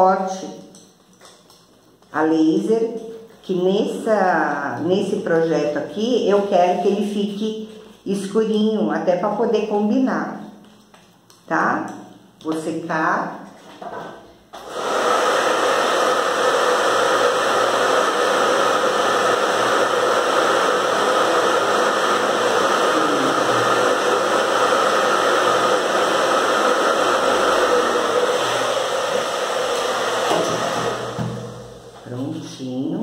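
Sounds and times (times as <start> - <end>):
hair dryer blowing: 14.5 - 32.3.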